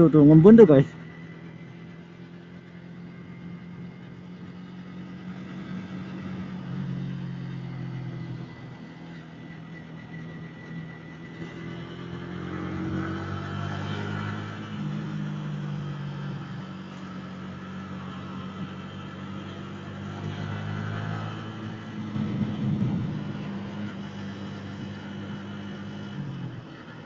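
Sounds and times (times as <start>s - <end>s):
motorcycle engine running: 0.0s - 27.0s
road noise: 0.0s - 27.0s
wind noise: 21.9s - 23.9s.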